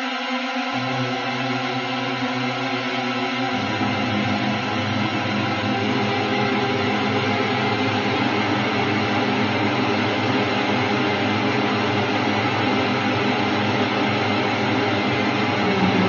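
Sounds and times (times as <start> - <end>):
dark ambient drone: 9.9 - 16.0.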